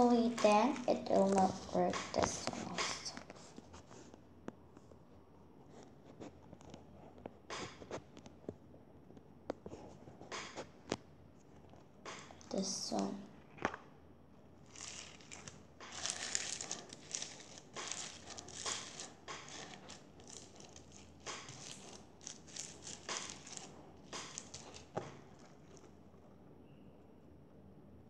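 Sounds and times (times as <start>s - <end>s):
crunchy slime crackling: 0.0s - 3.2s, 14.6s - 25.9s.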